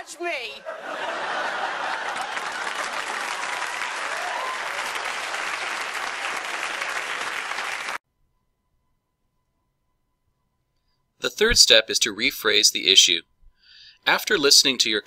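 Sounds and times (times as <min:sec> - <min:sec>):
studio audience applauding: 0:00.9 - 0:08.0.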